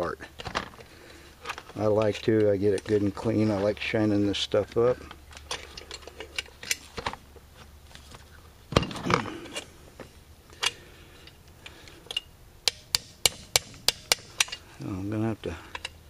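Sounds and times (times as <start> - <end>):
hand tools tapping on metal: 11.7 - 14.7.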